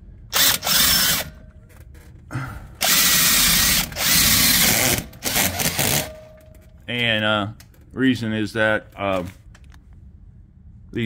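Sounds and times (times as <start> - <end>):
cordless drill reaming steel: 0.3 - 1.4, 2.8 - 6.1.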